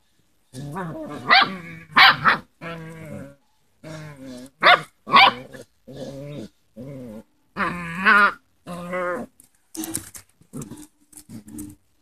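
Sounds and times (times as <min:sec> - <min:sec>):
puppies growling: 0:05.2 - 0:11.8.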